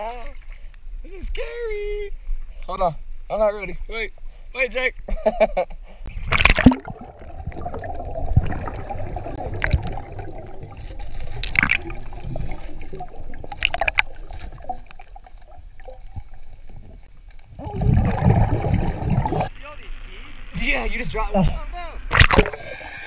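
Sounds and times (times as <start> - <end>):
muffled underwater river gurgling: 6.1 - 19.6.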